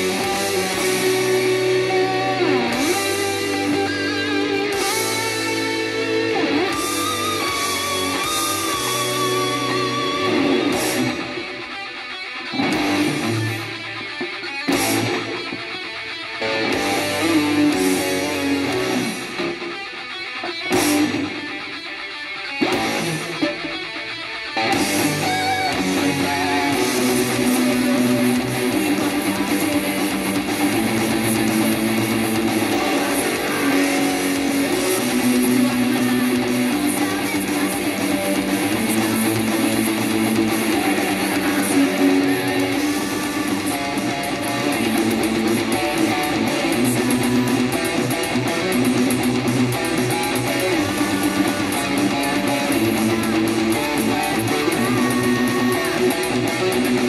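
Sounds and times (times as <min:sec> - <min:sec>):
electric guitar played with pick: 0:00.0 - 0:57.0.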